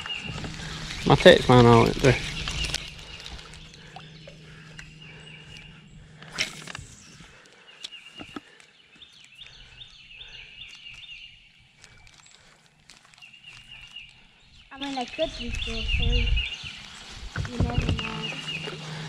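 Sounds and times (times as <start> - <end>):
low steady hum: 0.0 - 8.0, 15.6 - 19.0
bird chirping: 0.0 - 19.0
fishing line cast whoosh: 6.2 - 7.2.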